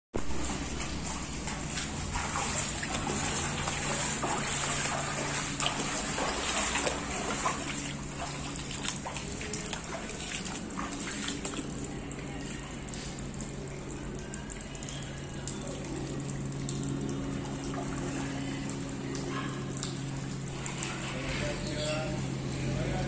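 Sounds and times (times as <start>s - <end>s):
footsteps splashing through shallow water: 0.2s - 13.8s.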